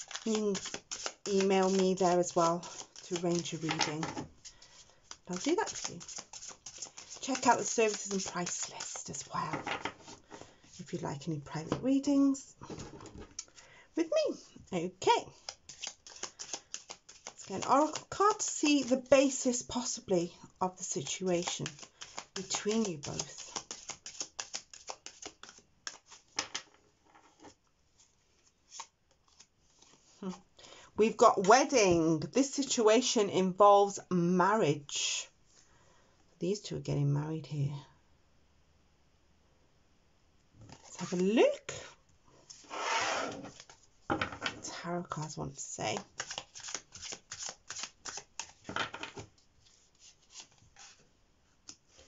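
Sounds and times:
cards being shuffled: 0.0 - 10.2, 15.3 - 19.6, 20.8 - 26.7, 27.4 - 30.4, 40.7 - 41.3, 43.4 - 43.9, 45.9 - 51.0
soft card sounds: 0.0 - 11.0, 14.4 - 20.0, 20.8 - 26.4, 27.4 - 30.5, 43.4 - 43.9, 45.2 - 52.0.

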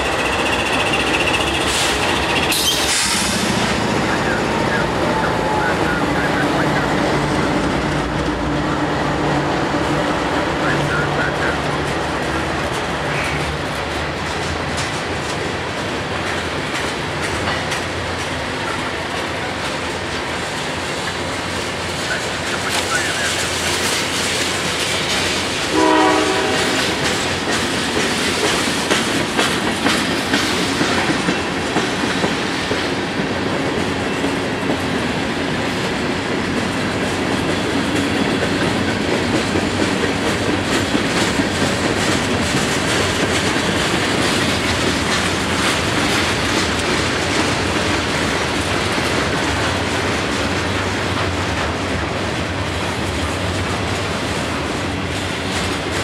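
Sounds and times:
train wheels clicking over rail joints: 0.0 - 4.4, 9.5 - 56.0
train rumble: 0.0 - 56.0
train horn blast: 25.7 - 27.2.

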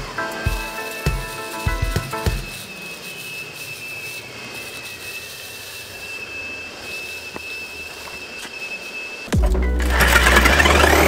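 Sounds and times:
shop vacuum whining: 0.0 - 11.0.

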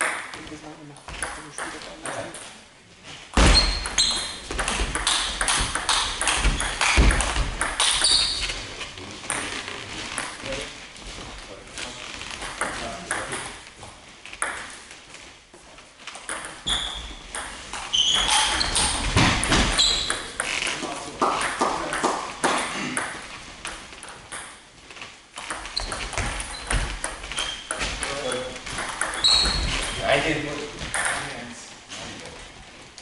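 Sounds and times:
shoes squeaking: 2.4 - 31.2
table tennis balls clicking: 3.4 - 8.6, 12.3 - 13.7, 14.3 - 14.8, 16.0 - 30.0.

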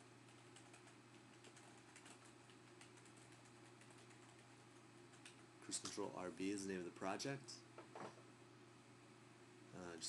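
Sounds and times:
low steady hum: 0.0 - 10.0
typing on computer keyboard: 0.3 - 5.4.

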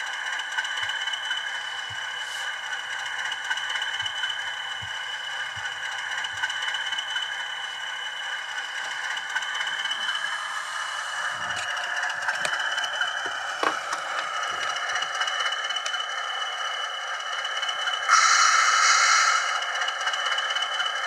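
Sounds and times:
diesel engine sound from small speaker: 0.0 - 21.0.

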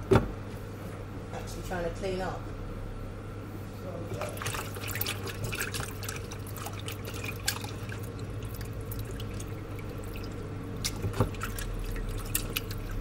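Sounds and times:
hands rubbing chicken in water: 4.1 - 13.0
water sloshing in plastic bowl: 4.1 - 13.0
water dripping: 4.2 - 13.0.

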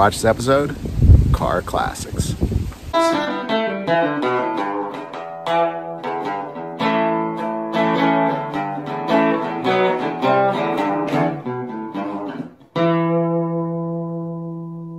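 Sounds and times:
acoustic guitar playing: 2.9 - 14.9.

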